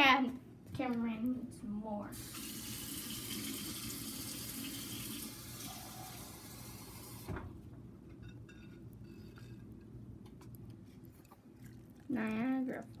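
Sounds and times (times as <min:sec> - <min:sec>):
hot water pouring into paper cup: 0:02.2 - 0:07.3.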